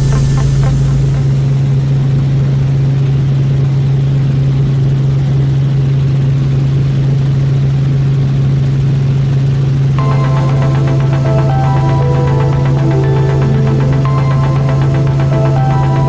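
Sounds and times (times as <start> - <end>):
helicopter cabin drone: 0.0 - 6.7, 10.0 - 16.0.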